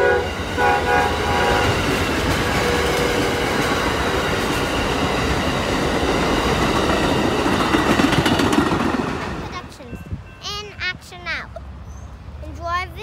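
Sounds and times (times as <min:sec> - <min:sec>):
train horn: 0:00.0 - 0:04.2
train wheels rumbling on rails: 0:00.0 - 0:10.3.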